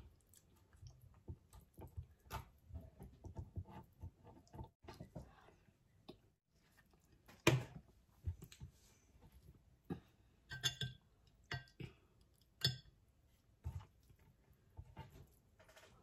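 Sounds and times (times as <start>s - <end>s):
metal spoon clinking glass bowl: 10.5s - 11.8s, 12.6s - 12.9s.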